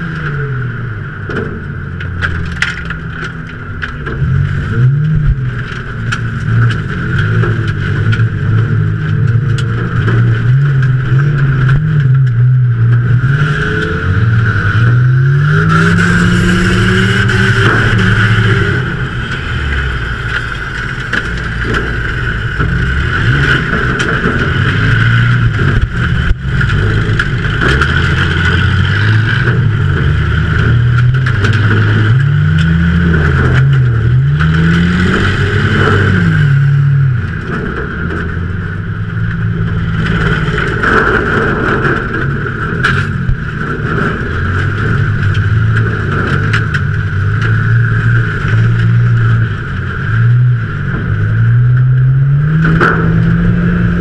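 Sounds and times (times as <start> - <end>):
race car engine revving: 0.0 - 54.0
roar of wind and tyres: 0.0 - 54.0.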